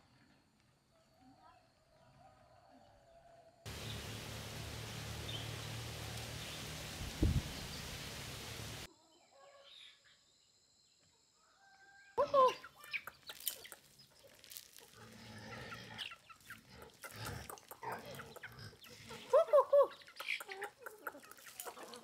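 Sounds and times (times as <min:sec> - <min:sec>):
steady outdoor hiss: 0:03.7 - 0:08.9
chickens clucking and calling: 0:14.8 - 0:22.0.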